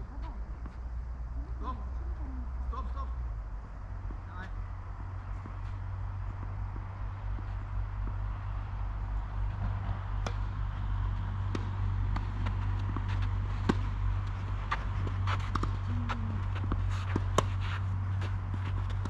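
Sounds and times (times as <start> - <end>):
steady low rumble: 0.0 - 19.0
tennis ball bouncing: 5.0 - 19.0
racket striking ball: 10.1 - 19.0
shoes scuffing on court: 11.5 - 19.0.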